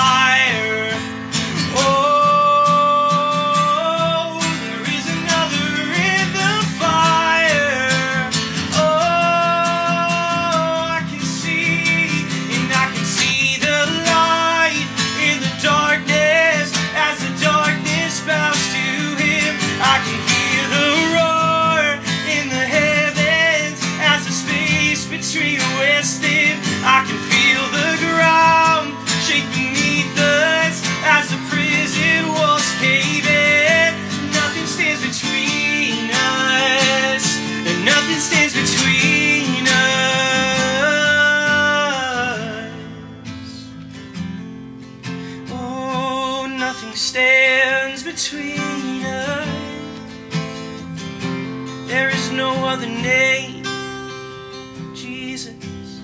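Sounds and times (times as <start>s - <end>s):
man singing: 0.0s - 43.8s, 45.3s - 50.3s, 51.7s - 56.0s
acoustic guitar strumming: 0.0s - 56.0s.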